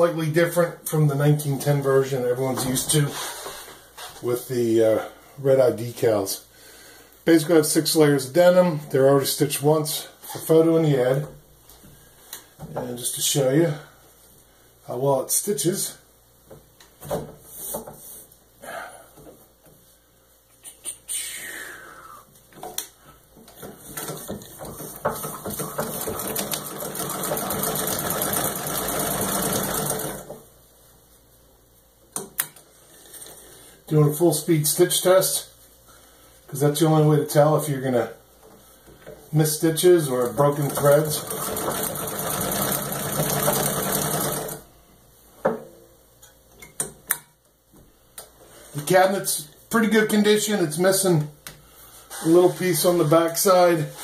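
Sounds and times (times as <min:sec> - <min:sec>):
sewing machine stitching: 0:25.2 - 0:30.4, 0:40.3 - 0:44.6.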